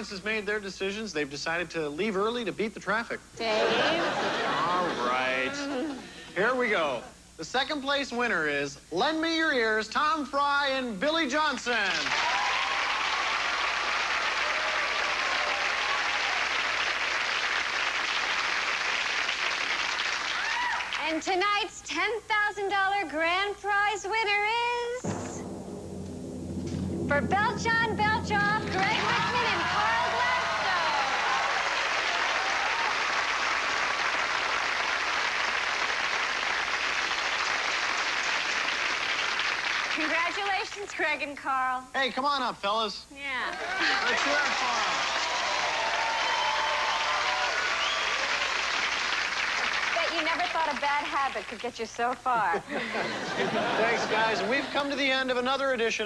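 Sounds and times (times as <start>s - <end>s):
audience applauding: 11.8s - 21.0s, 28.9s - 40.4s, 43.5s - 51.8s.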